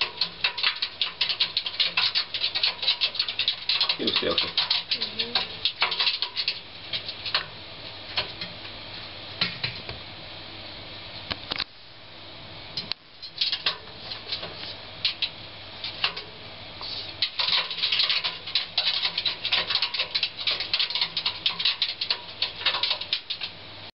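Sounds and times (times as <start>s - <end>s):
claws clattering on metal drum: 0.0s - 8.6s, 13.2s - 16.3s, 17.2s - 23.6s.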